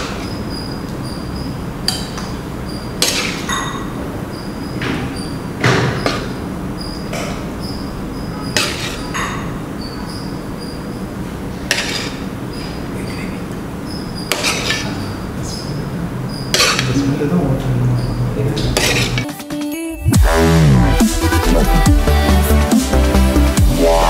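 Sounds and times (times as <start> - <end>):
ladle scraping a wok: 8.6 - 9.1, 11.7 - 12.3, 14.3 - 14.9, 16.5 - 17.0, 18.8 - 19.2.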